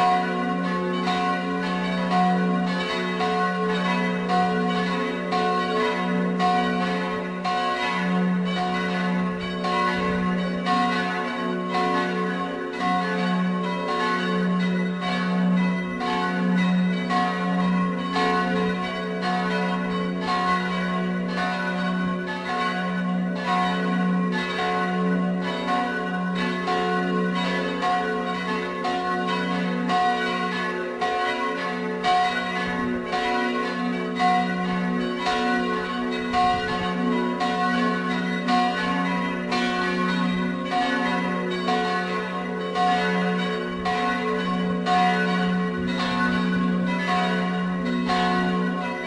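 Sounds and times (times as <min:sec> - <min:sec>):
church bells pealing: 0:00.0 - 0:49.0.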